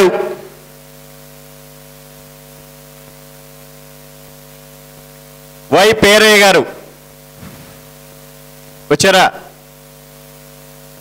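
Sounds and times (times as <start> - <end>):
electrical mains hum: 0.0 - 11.0
steady hiss: 0.0 - 11.0.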